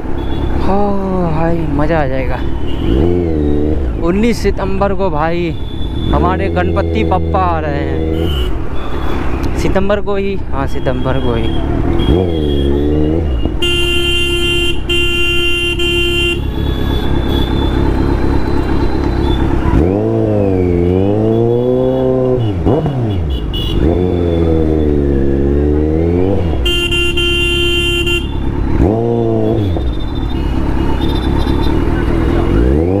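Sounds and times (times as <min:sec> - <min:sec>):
motorcycle engine revving: 0:02.5 - 0:04.2, 0:11.4 - 0:13.6, 0:16.1 - 0:33.0
vehicle horn: 0:08.2 - 0:08.6, 0:12.0 - 0:17.8, 0:21.3 - 0:24.4, 0:26.6 - 0:28.5.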